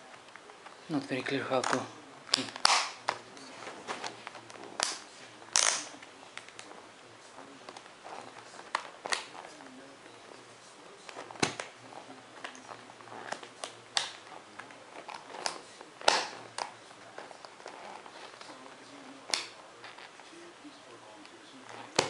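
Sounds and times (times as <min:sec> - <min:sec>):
plastic buckles clicking and snapping: 0:01.6 - 0:03.2, 0:04.0 - 0:06.7, 0:08.6 - 0:09.4, 0:11.1 - 0:11.8, 0:12.4 - 0:18.4, 0:19.2 - 0:20.2.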